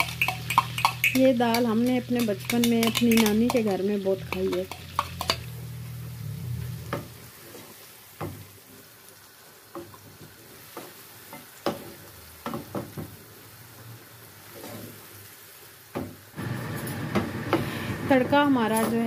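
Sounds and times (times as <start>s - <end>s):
wooden spoon knocking against pan: 0.0s - 5.4s
garlic sizzling in a frying pan: 0.0s - 19.0s.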